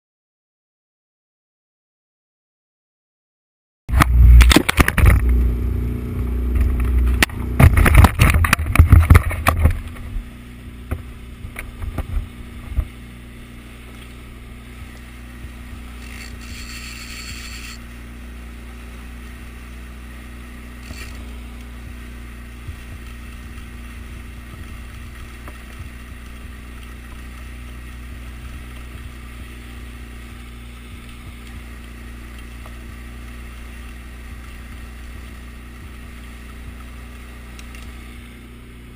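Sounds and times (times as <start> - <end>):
outboard motor droning: 3.9 - 38.9
water wash from boat: 3.9 - 38.9.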